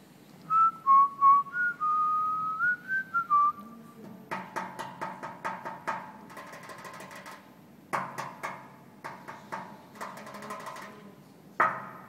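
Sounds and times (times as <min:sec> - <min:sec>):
person whistling a tune: 0:00.5 - 0:03.7.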